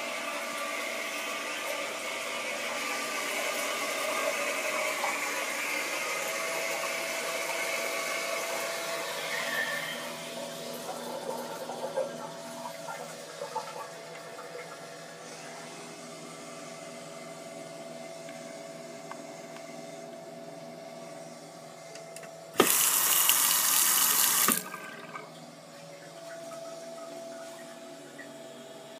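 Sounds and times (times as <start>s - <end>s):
faucet water running into basin: 22.6s - 25.3s.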